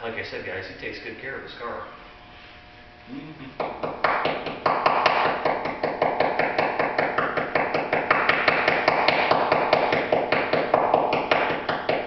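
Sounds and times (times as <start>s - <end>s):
tool tapping on sheet metal: 3.6s - 12.0s.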